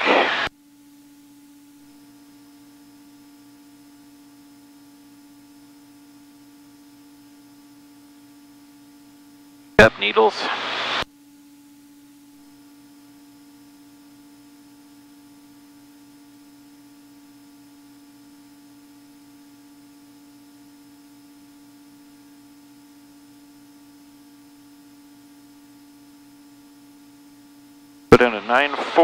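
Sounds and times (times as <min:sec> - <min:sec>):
muffled aircraft engine drone: 0:26.8 - 0:29.0.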